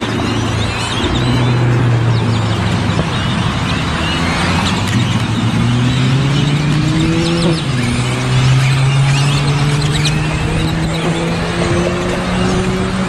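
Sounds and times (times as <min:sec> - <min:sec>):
flock of birds calling: 0:00.0 - 0:13.0
vehicle engine running: 0:00.0 - 0:13.0.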